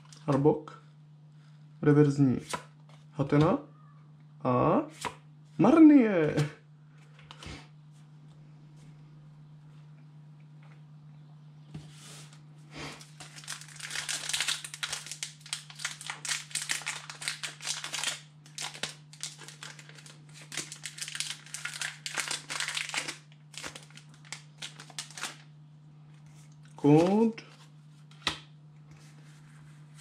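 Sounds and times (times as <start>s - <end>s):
foil wrapper crinkling: 13.0s - 25.5s.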